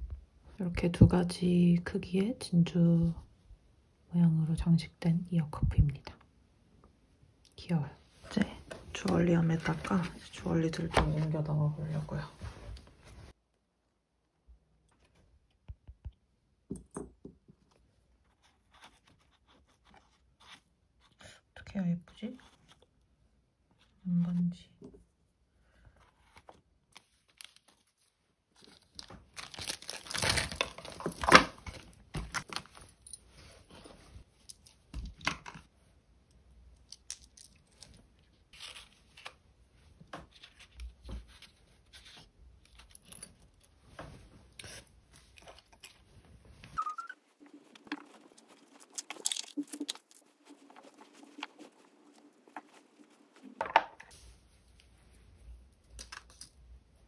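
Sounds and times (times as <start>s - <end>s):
plastic bag crinkling: 28.6s - 33.0s, 47.4s - 52.8s.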